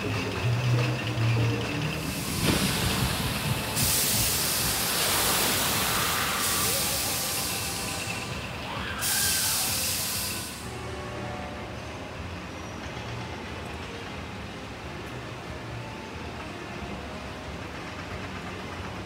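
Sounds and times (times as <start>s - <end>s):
misting nozzles hissing: 2.0s - 10.7s.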